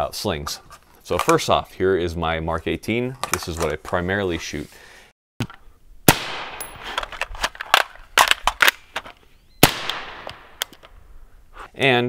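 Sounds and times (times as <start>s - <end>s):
rifle shots with echo: 6.1s - 6.9s, 9.6s - 10.7s
short sharp gunshot cracks: 6.1s - 6.9s, 9.6s - 10.7s.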